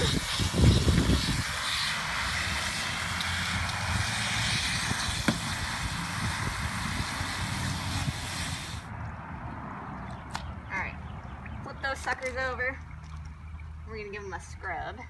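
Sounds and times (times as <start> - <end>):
hose nozzle spraying water: 0.0 - 8.9.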